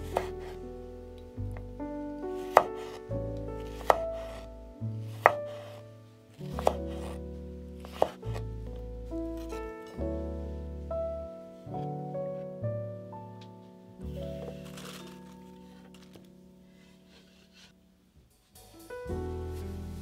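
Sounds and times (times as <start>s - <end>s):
soft piano music: 0.0s - 20.0s
knife chopping on cutting board: 2.5s - 3.0s, 3.7s - 4.5s, 6.6s - 7.1s, 7.9s - 8.2s.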